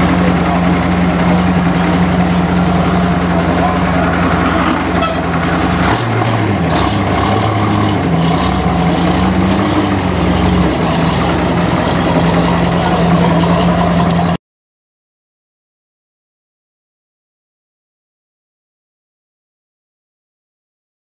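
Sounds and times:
heavy truck engine running: 0:00.0 - 0:14.4.

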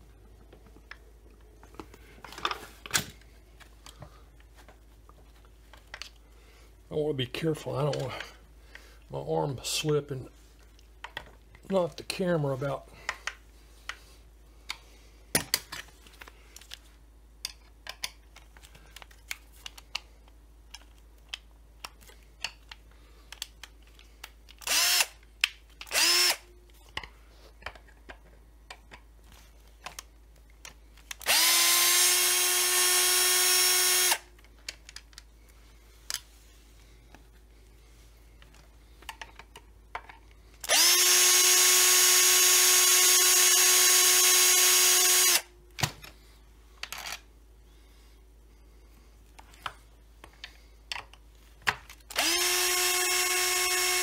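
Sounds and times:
power drill whirring: 0:24.6 - 0:25.2, 0:25.9 - 0:26.4, 0:31.2 - 0:34.3, 0:40.6 - 0:45.5, 0:52.1 - 0:54.0.

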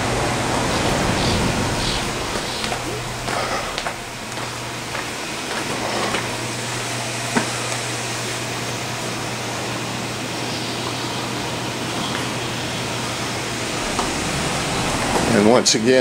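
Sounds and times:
low hum: 0:00.0 - 0:09.6, 0:12.8 - 0:16.0
room noise hiss: 0:00.0 - 0:16.0.

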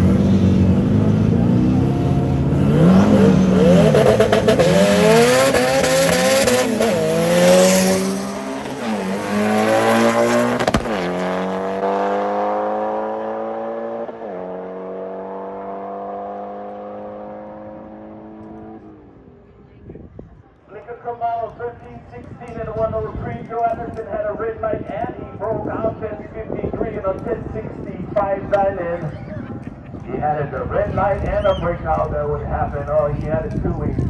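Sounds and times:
race cars accelerating: 0:00.0 - 0:19.4.

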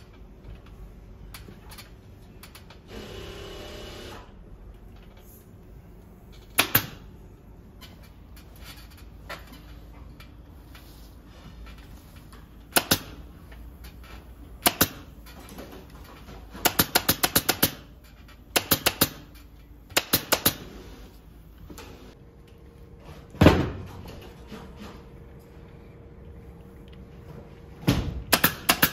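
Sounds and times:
pneumatic staple gun clacks: 0:28.3 - 0:28.9.

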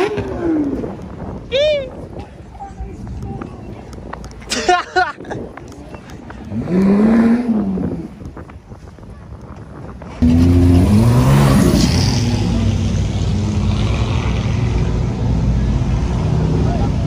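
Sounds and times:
car engine revving: 0:06.5 - 0:08.1, 0:10.2 - 0:17.0.

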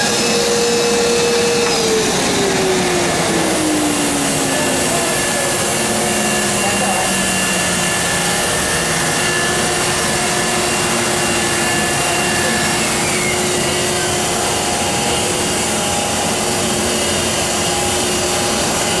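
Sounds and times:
printing press blowers hissing: 0:00.0 - 0:19.0
thin steady whining tones: 0:00.0 - 0:19.0.

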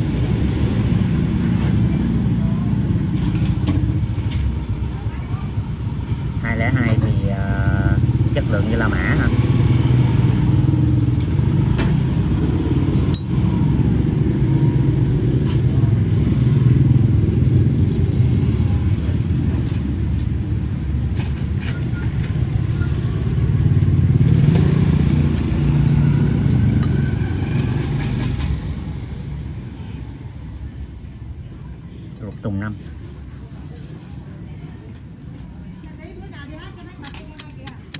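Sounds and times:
street traffic: 0:00.0 - 0:37.9
metallic lighter lid clicks: 0:37.0 - 0:37.9.

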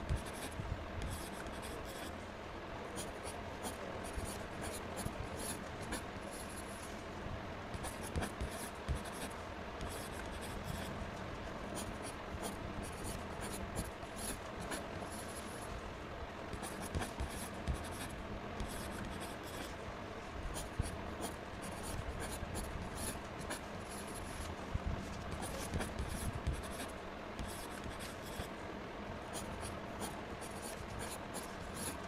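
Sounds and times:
pen scratching on paper: 0:00.1 - 0:02.1, 0:07.8 - 0:10.9, 0:11.8 - 0:15.5, 0:16.6 - 0:19.7, 0:20.6 - 0:24.4, 0:25.3 - 0:28.5, 0:29.3 - 0:32.0.

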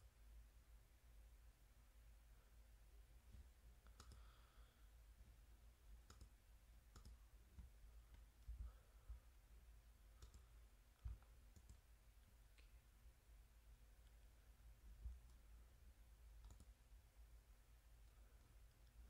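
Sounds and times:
faint computer mouse clicks: 0:03.8 - 0:04.4, 0:06.0 - 0:08.8, 0:10.2 - 0:11.9, 0:16.4 - 0:16.8.

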